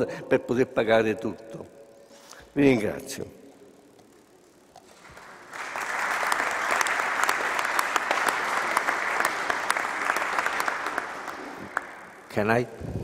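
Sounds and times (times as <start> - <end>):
audience applause: 4.9 - 12.4.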